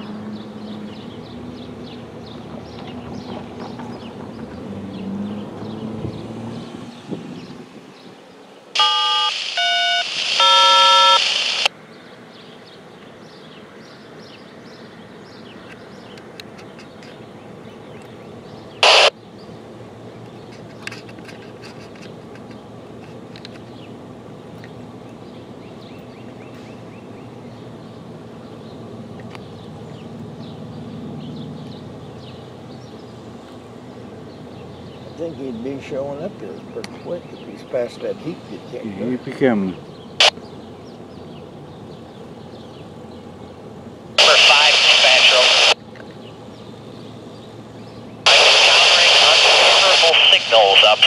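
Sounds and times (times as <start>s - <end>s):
loud noise burst: 8.8s - 11.7s, 18.8s - 19.1s, 44.2s - 45.8s
radio scanner tone beeps: 8.8s - 11.7s, 18.8s - 19.1s, 44.2s - 45.8s, 48.3s - 51.0s
background hiss: 18.8s - 19.1s, 44.2s - 45.8s, 48.3s - 51.0s.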